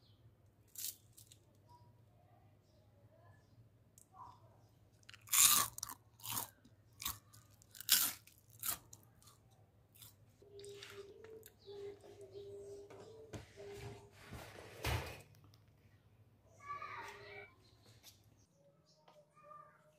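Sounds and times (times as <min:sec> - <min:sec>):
crunchy snack chewing: 0:05.0 - 0:10.8.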